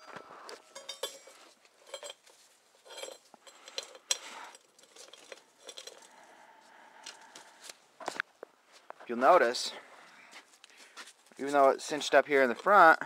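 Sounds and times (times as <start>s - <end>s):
metal chain links clinking: 0.0s - 6.3s.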